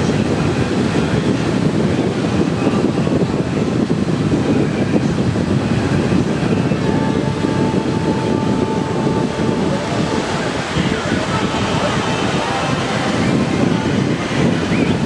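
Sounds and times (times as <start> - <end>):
bow wash: 0.0 - 15.0
ship engines rumbling: 0.0 - 15.0
faint high tone: 6.3 - 13.8.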